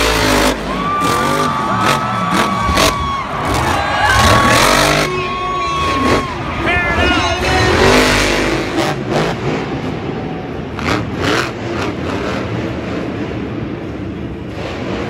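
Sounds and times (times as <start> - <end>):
truck engines revving: 0.0 - 15.0.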